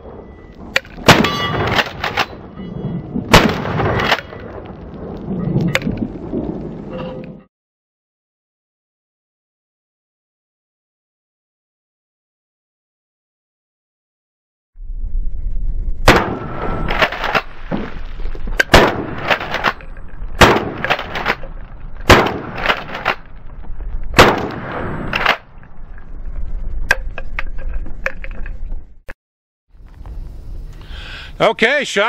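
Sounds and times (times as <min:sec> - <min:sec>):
shotgun firing: 0:00.9 - 0:02.4, 0:03.3 - 0:04.4, 0:16.1 - 0:17.5, 0:18.6 - 0:19.8, 0:20.4 - 0:21.4, 0:22.1 - 0:23.2, 0:24.2 - 0:25.4.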